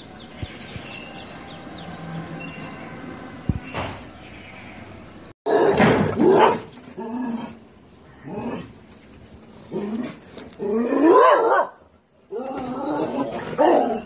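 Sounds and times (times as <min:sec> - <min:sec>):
dog barking and whining: 0:05.5 - 0:06.8, 0:10.7 - 0:14.0.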